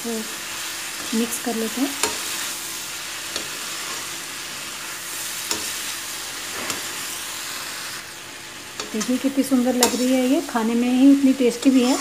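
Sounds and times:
vegetables sizzling in a pan: 0.0s - 12.0s
metal spatula scraping a pan: 8.8s - 10.3s, 11.6s - 12.0s.

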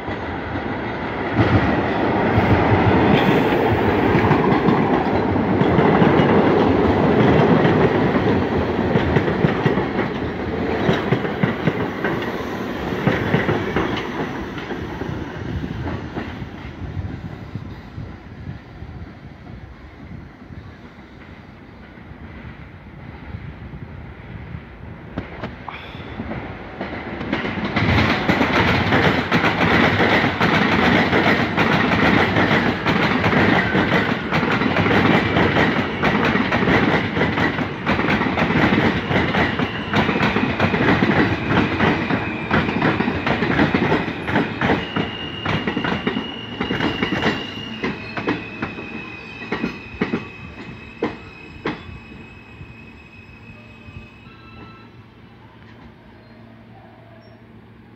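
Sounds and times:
subway train wheels clacking: 0.0s - 57.9s
high-pitched wheel squeal: 44.6s - 55.1s.

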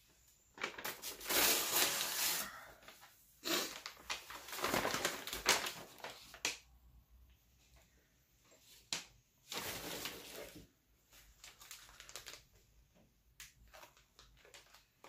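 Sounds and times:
packaging crinkling and rustling: 0.5s - 6.7s, 8.9s - 12.7s, 13.4s - 15.0s.

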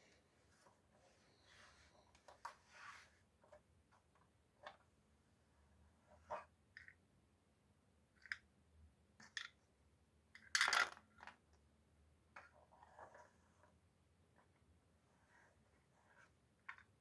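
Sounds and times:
wooden pieces clattering on table: 10.4s - 11.3s.

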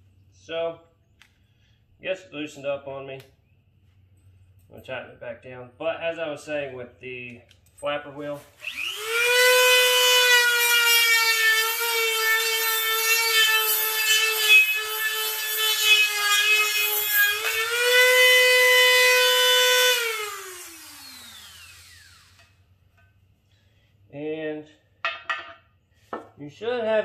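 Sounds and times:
rotary tool high whine: 8.5s - 22.7s.

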